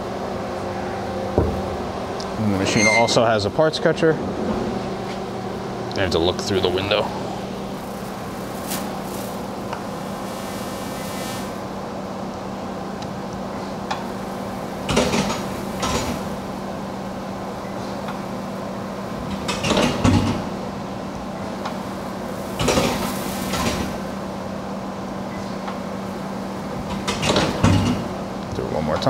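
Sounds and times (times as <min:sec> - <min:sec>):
machine hum: 0:04.2 - 0:19.4.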